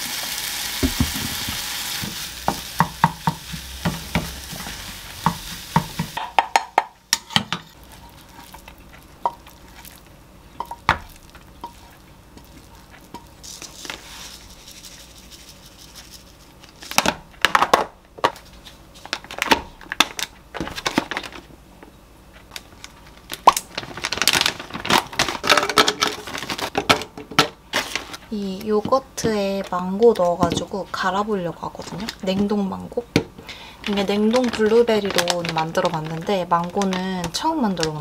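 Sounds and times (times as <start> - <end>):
fruit chunks clattering into plastic: 23.4 - 28.1, 33.8 - 37.8.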